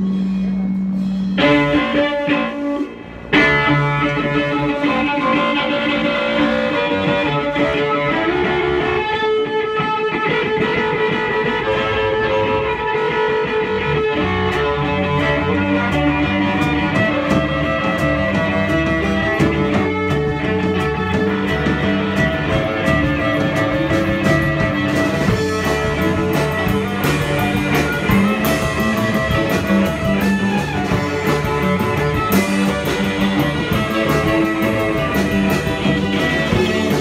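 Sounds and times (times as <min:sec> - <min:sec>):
cymbals ringing: 0:00.0 - 0:03.1
live punk band playing: 0:00.0 - 0:37.0.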